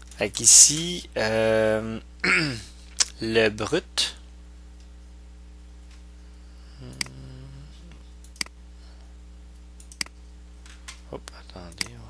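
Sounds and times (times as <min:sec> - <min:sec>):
low electrical hum: 0:00.0 - 0:12.0
computer mouse clicks: 0:08.2 - 0:08.6, 0:09.8 - 0:11.0, 0:11.7 - 0:12.0.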